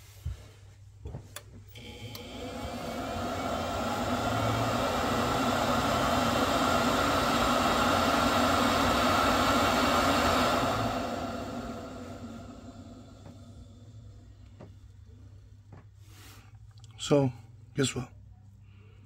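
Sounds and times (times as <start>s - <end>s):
boiler fan whirring: 1.0s - 18.0s
low hum: 1.7s - 15.8s.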